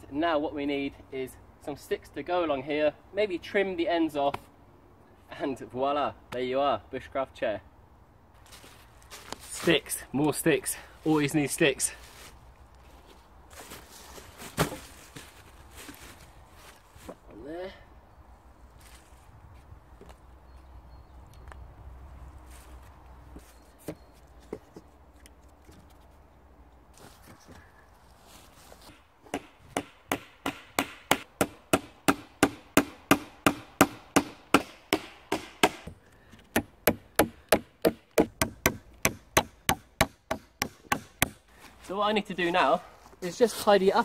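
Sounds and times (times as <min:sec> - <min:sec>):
axe hammering nails into wood: 0:29.3 - 0:41.4.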